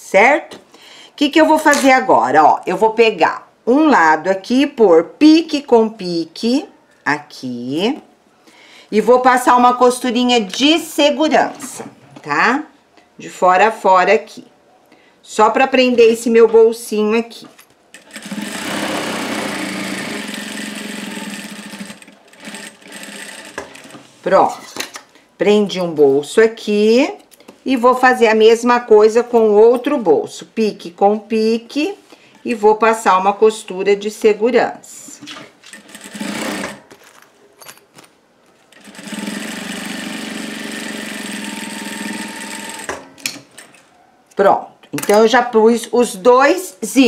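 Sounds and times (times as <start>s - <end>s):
sewing machine running: 18.0s - 24.0s, 35.7s - 36.8s, 38.8s - 43.2s.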